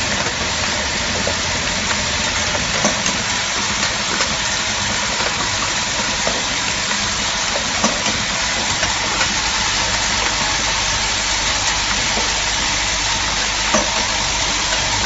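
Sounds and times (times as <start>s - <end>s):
packing machine hissing: 0.0s - 15.0s.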